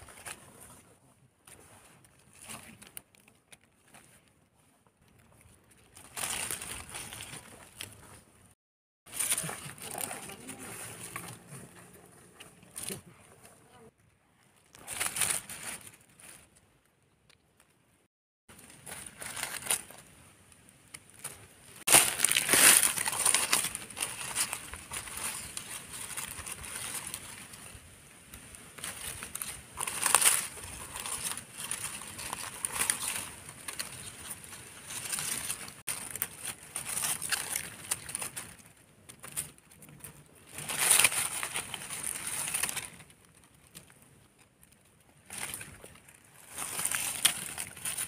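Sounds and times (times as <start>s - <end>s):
dry leaves crunching and rustling: 5.9s - 8.2s, 9.1s - 11.8s, 14.6s - 16.5s, 18.5s - 20.1s, 21.1s - 44.0s, 44.6s - 48.0s.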